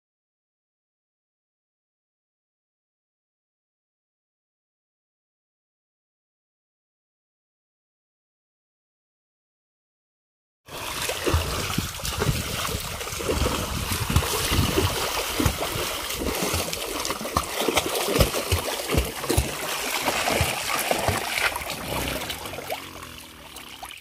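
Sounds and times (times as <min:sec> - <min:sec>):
water splashing and sloshing: 0:10.7 - 0:24.0.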